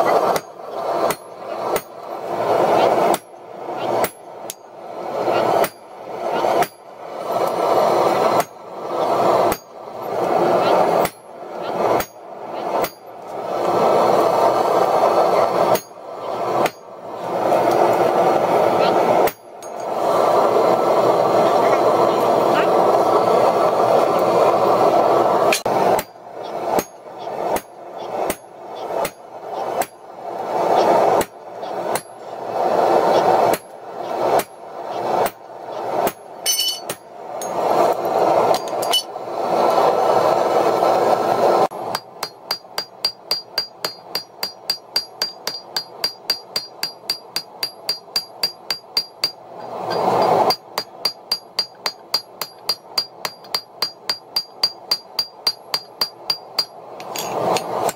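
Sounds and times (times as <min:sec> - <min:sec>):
hammer striking metal on anvil: 0:01.1 - 0:01.9, 0:06.6 - 0:06.9, 0:09.5 - 0:09.7, 0:12.8 - 0:13.1, 0:15.7 - 0:16.0, 0:26.8 - 0:27.7, 0:28.3 - 0:29.2, 0:36.0 - 0:37.6, 0:38.6 - 0:39.1, 0:41.9 - 0:49.4, 0:50.5 - 0:57.9
anvil ringing: 0:36.5 - 0:37.0.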